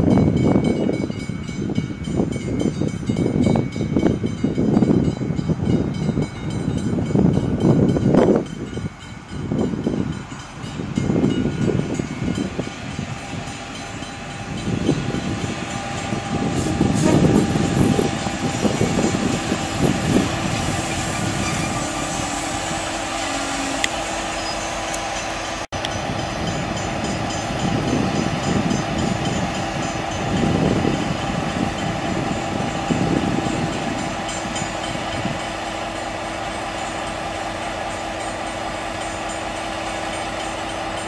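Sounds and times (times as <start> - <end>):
diesel locomotive engine rumble: 0.0 - 41.0
thin high squeal: 15.2 - 24.9.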